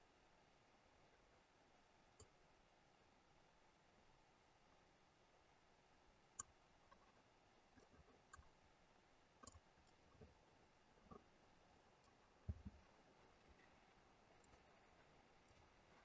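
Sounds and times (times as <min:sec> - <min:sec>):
computer mouse clicks: 0:09.4 - 0:10.0.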